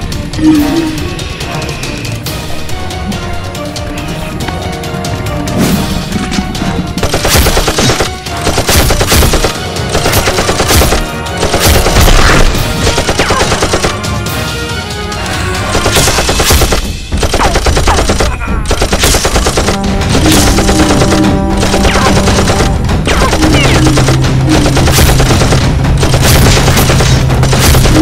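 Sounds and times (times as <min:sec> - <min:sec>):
background music: 0:00.0 - 0:28.0
machine-gun fire sound effects: 0:07.0 - 0:14.0, 0:15.7 - 0:28.0.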